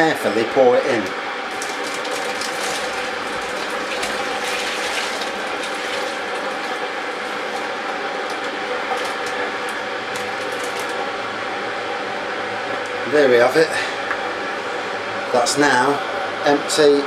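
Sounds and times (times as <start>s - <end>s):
plastic pouch crinkling: 1.5s - 11.1s
thick liquid pouring: 1.5s - 11.2s.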